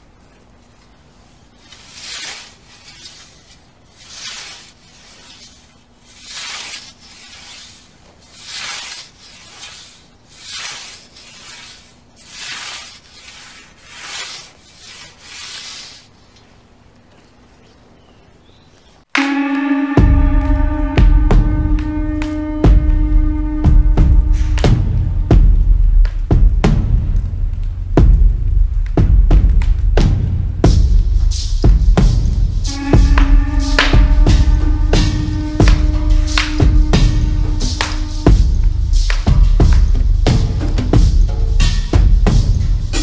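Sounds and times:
scythe swishing through grass: 1.4s - 16.2s.

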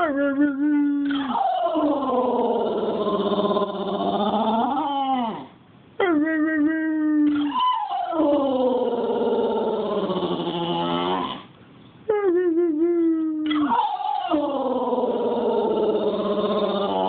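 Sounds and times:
dog howling: 1.0s - 5.5s, 7.3s - 11.5s, 13.4s - 17.0s.

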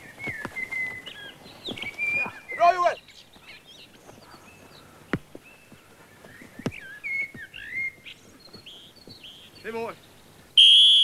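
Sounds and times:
birds chirping faintly: 0.0s - 10.7s
football kicked on grass: 5.1s - 5.4s, 6.2s - 7.9s.

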